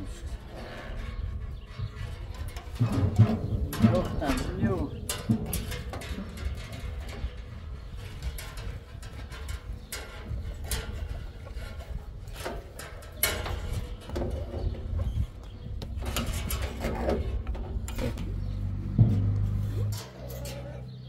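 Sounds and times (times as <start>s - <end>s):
sheet metal knocks and scrapes: 0.5s - 21.0s
steady low rumble: 15.8s - 20.1s.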